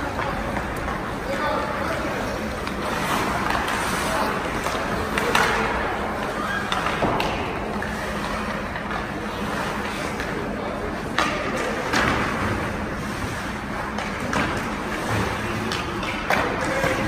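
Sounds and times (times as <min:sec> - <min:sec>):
hockey sticks and puck knocking: 0:00.0 - 0:12.9, 0:13.6 - 0:17.0
skates scraping on ice: 0:00.0 - 0:17.0.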